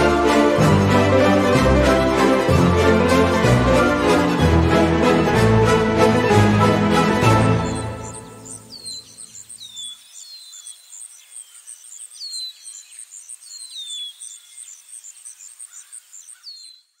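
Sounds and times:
string music: 0.0s - 9.0s
birds calling: 7.0s - 17.0s
insect chirping: 7.7s - 17.0s.

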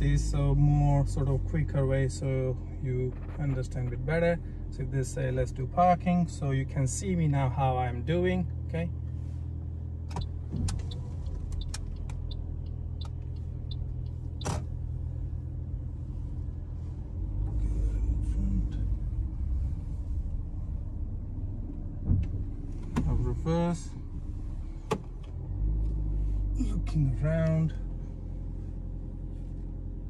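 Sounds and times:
car cabin running hum: 0.0s - 30.0s.

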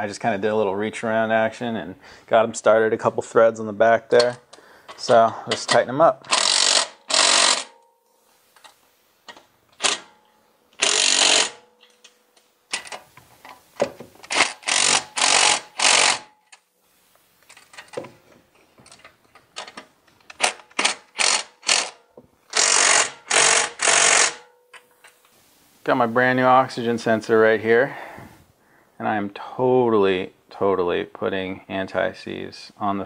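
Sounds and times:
cordless electric ratchet bursts: 6.3s - 7.7s, 10.8s - 11.6s, 14.3s - 16.3s, 20.4s - 24.4s
small ratchet clicks: 6.3s - 7.8s, 10.8s - 11.6s, 14.3s - 16.6s, 19.6s - 24.5s.

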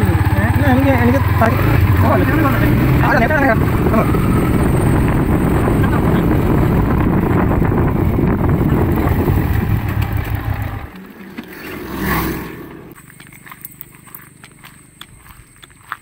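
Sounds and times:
motor scooter engine: 0.0s - 15.9s
wind rush on microphone: 1.7s - 10.9s.

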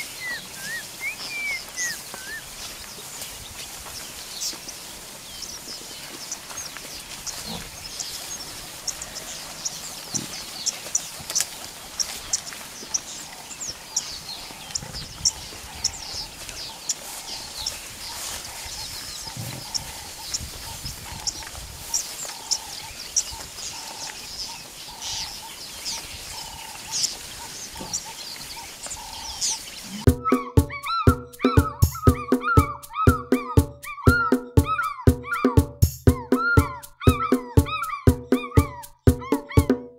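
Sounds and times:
birds chirping: 0.0s - 39.9s
buffalo grunting: 7.4s - 7.8s, 19.2s - 20.1s, 29.8s - 35.5s.

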